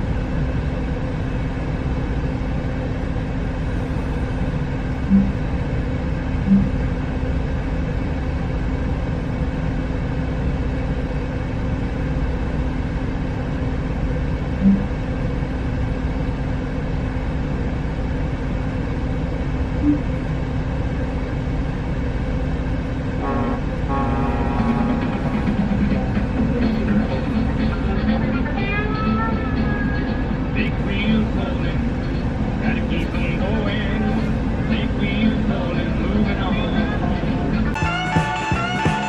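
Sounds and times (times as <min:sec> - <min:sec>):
constant hum: 0:00.0 - 0:39.0
truck engine idling: 0:00.0 - 0:39.0
short low beeps: 0:05.0 - 0:05.5, 0:06.4 - 0:06.8, 0:14.6 - 0:15.0, 0:19.8 - 0:20.1.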